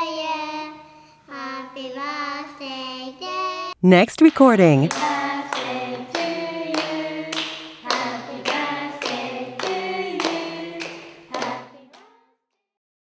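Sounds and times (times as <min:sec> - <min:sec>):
voices singing: 0:00.0 - 0:12.0
hand claps: 0:04.9 - 0:12.1.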